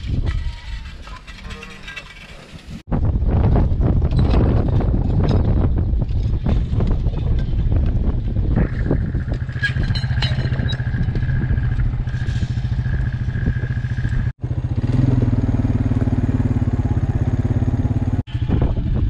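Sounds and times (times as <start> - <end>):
quad bike engine running: 8.3 - 19.0.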